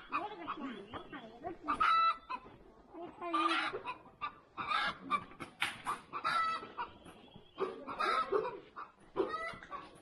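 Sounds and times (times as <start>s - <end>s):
chickens clucking: 0.0s - 10.0s.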